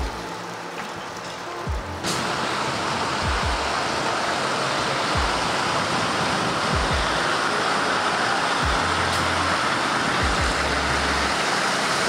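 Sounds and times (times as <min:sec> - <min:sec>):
truck low rumbles: 0:00.0 - 0:12.0
tyres hissing on wet road: 0:00.0 - 0:12.0.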